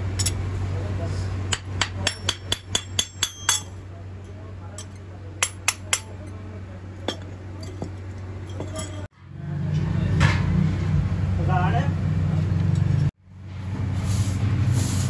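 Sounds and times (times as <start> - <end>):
metallic clinks of goblets: 7.0 - 9.1.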